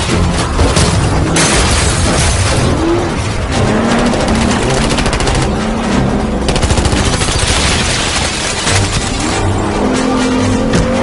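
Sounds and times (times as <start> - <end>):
rapid automatic gunfire: 3.6 - 5.7, 6.5 - 9.0.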